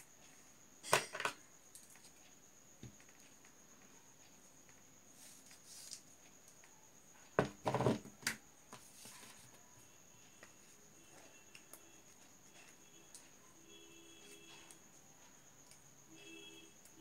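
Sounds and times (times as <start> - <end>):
objects clattering on table: 0.8 - 1.4, 7.4 - 8.3.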